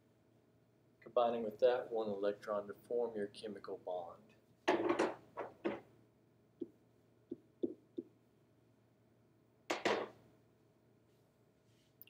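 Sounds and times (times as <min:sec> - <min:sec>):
pen tapping on whiteboard: 0:06.6 - 0:08.1.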